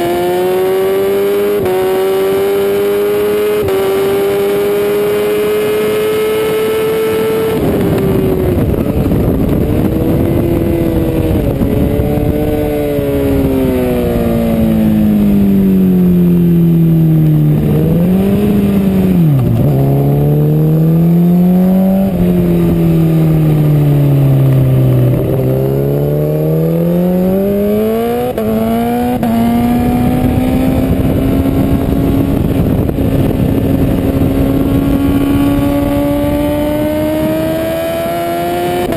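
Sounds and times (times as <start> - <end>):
motorcycle engine at racing revs: 0.0 - 38.9.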